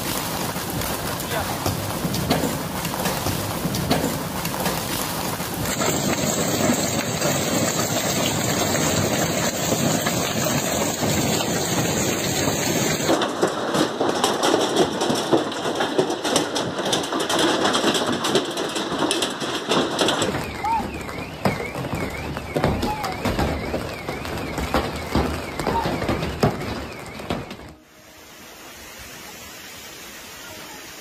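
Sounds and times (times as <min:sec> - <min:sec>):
hail clattering on hard surfaces: 0:00.0 - 0:27.8
sharp hailstone impacts: 0:00.0 - 0:27.8.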